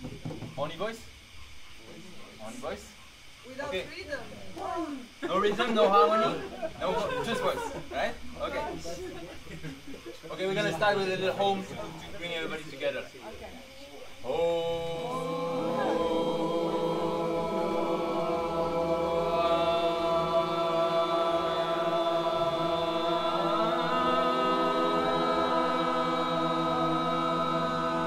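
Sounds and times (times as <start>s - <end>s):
group of voices chanting: 14.2s - 28.0s.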